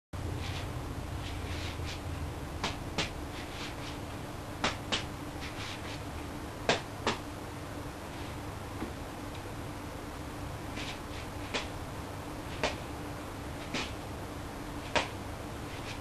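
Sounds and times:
low room hum: 0.2s - 16.0s
juggling balls slapping into hands: 4.6s - 5.1s, 6.7s - 7.2s, 12.6s - 12.8s, 14.9s - 15.2s.

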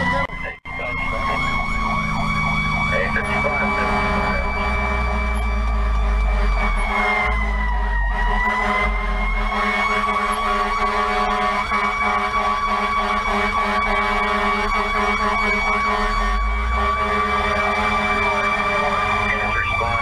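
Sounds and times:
fire engine siren wailing: 0.0s - 20.0s
truck engine and road rumble: 0.0s - 20.0s.

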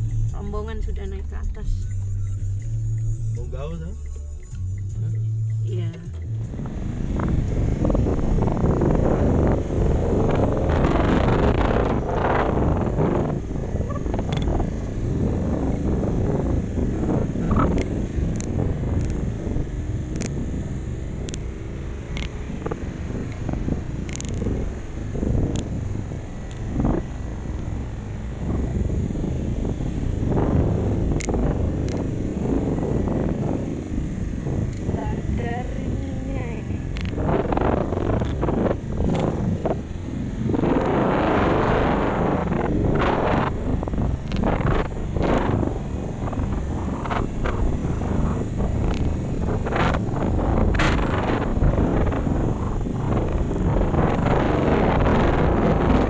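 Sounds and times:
vehicle engine and road rumble: 0.0s - 56.0s
sharp ticks and rattles: 7.2s - 28.9s, 29.5s - 34.0s, 40.4s - 56.0s.

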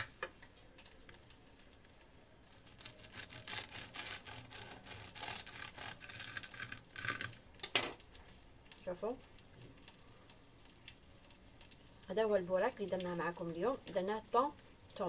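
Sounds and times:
knife crunching through crisp pastry: 2.5s - 7.4s.

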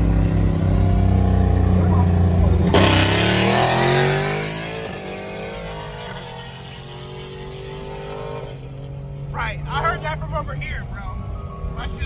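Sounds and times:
car exhaust winding down: 0.0s - 9.0s
engine and road drone: 0.0s - 12.0s.

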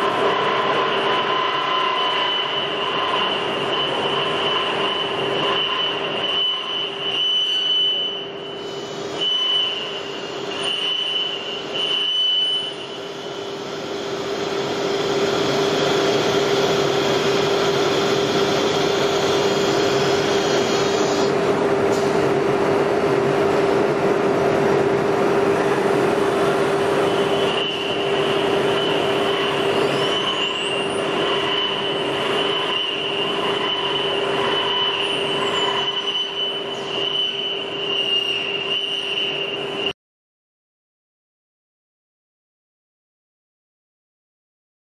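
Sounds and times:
router head moving whines: 0.0s - 21.4s, 26.8s - 39.9s
router spindle whining: 0.0s - 21.5s, 26.4s - 39.8s.

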